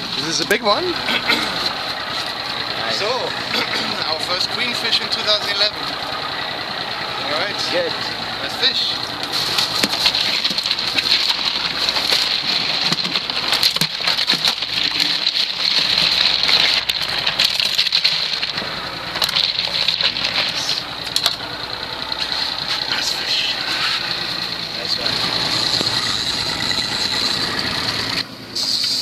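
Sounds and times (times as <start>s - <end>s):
boat engine running: 0.0s - 29.0s
dense crackling and clattering: 0.0s - 29.0s.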